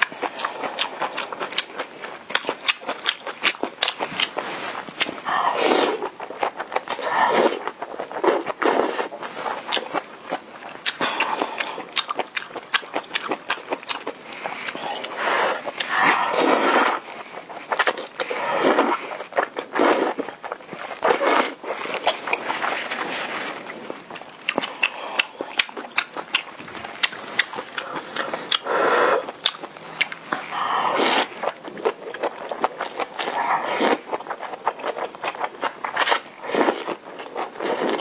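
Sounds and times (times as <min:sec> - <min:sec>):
noodle slurping: 0:04.2 - 0:10.0, 0:14.2 - 0:25.9, 0:26.6 - 0:34.2.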